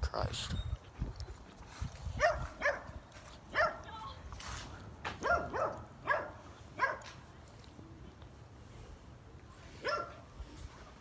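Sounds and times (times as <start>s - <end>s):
dog barking: 2.2s - 2.9s, 3.5s - 3.9s, 5.2s - 7.1s, 9.8s - 10.2s.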